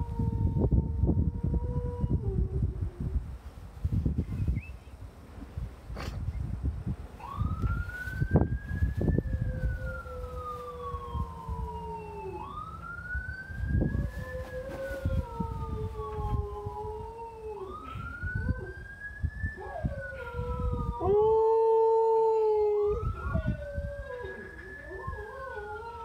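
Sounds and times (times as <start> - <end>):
ambulance siren wail: 7.2 - 26.0.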